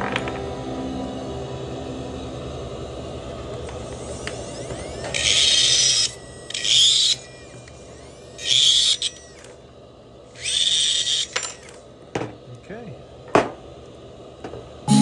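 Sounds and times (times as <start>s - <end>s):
high-pitched dental drill grinding: 3.7s - 9.6s, 10.3s - 11.8s.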